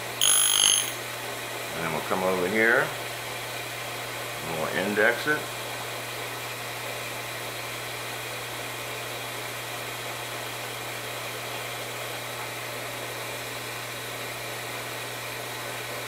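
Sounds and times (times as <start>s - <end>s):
grinder wheel humming: 0.0s - 1.1s.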